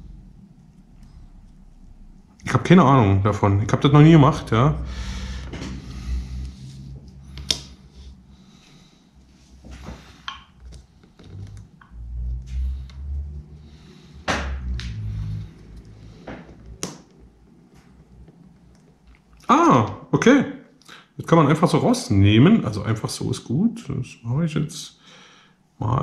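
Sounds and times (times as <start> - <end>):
fingers rubbing plastic: 10.6 - 13.5.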